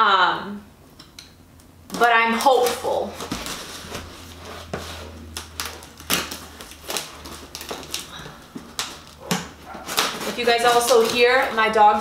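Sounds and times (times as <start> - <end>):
packaging snapping: 1.9 - 11.7
packaging crackling and clicking: 5.1 - 12.0.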